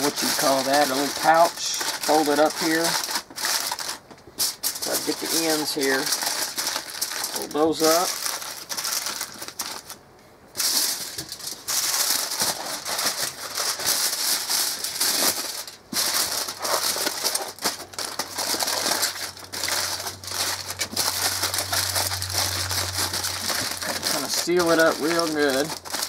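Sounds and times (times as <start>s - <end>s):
aluminum foil crinkling: 0.0s - 26.0s
low steady hum: 0.0s - 26.0s.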